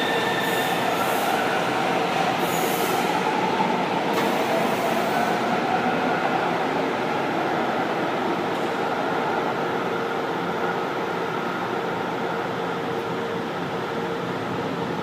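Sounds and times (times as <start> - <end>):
train doors hissing open: 0.0 - 1.6, 2.3 - 3.4, 4.1 - 5.4
train mechanical hum: 0.0 - 15.0.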